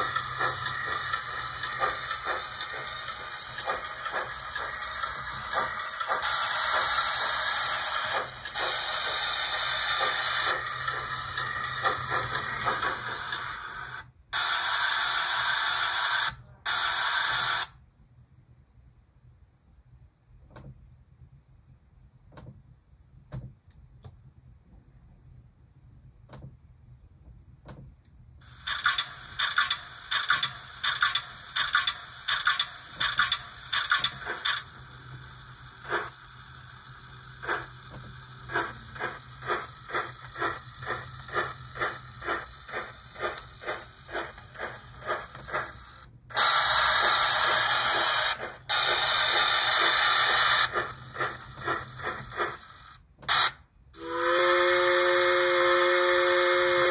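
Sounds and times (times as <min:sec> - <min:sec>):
rhythmic locomotive pulsing: 0:00.0 - 0:14.1, 0:28.4 - 0:53.0.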